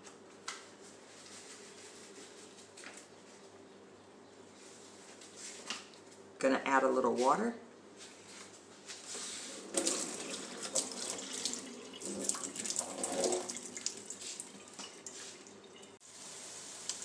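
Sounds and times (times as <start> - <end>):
tap water splashing into cup: 9.7 - 15.2.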